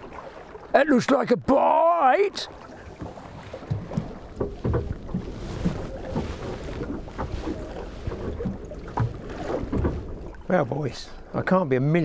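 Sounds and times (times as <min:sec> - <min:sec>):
water slapping boat hull: 0:00.0 - 0:12.0
wind buffeting microphone: 0:02.8 - 0:10.5.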